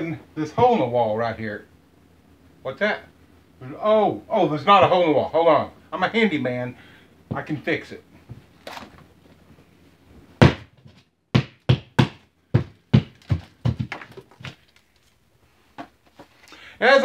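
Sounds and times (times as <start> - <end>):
hammer striking drywall: 10.4 - 14.2.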